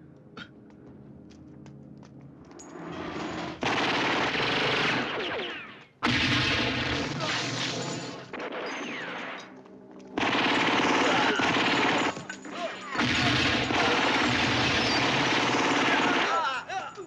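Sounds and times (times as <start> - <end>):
rapid automatic gunfire: 3.6 - 7.8, 10.2 - 12.2, 13.0 - 16.6.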